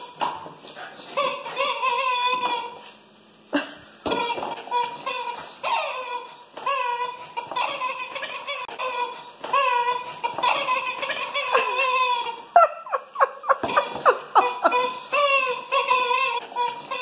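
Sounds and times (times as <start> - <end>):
rubber chicken toy squawking: 4.1 - 12.5, 13.6 - 17.0.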